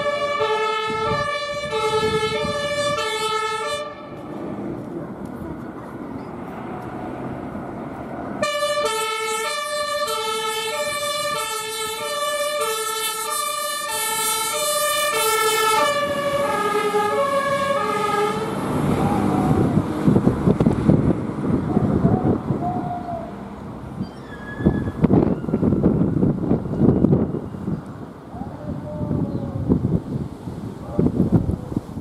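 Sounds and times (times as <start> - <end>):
two-tone siren: 0.0 - 4.2, 8.4 - 19.8, 24.0 - 27.6
low engine rumble: 3.9 - 8.6, 16.0 - 32.0.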